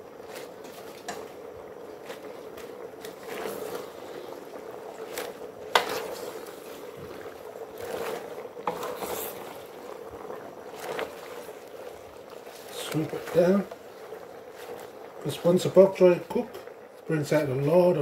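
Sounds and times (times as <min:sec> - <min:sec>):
spatula scraping pot: 0:02.2 - 0:15.7.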